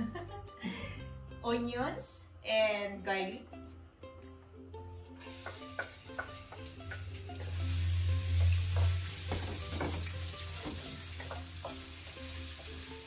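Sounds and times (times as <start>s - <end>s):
onions sizzling in oil: 5.2s - 13.0s.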